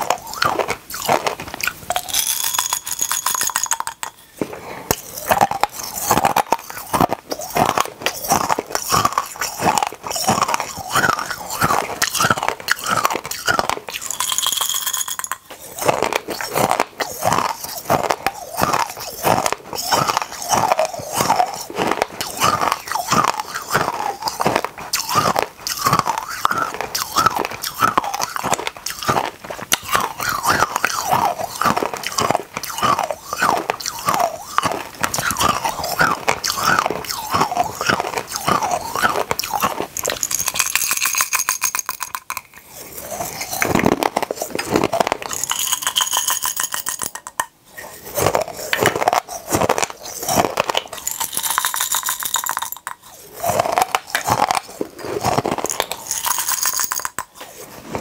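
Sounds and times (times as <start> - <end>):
hard candies crunched and chewed: 0.0 - 58.0.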